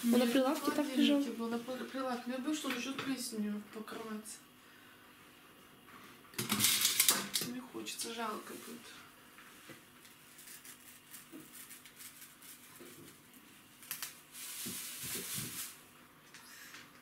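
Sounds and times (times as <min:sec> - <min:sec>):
plastic bag crinkling: 0:10.1 - 0:15.8.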